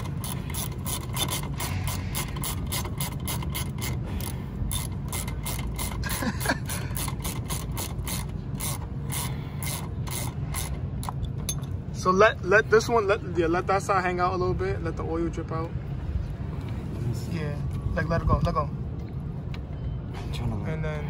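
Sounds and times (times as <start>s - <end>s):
ratchet wrench clicking: 0.0s - 11.8s.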